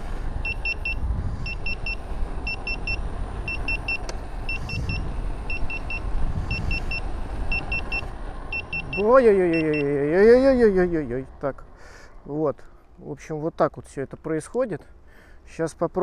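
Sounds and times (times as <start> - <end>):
wind and tyre rumble on asphalt: 0.0 - 16.0
speed alarm beeping: 0.4 - 9.9.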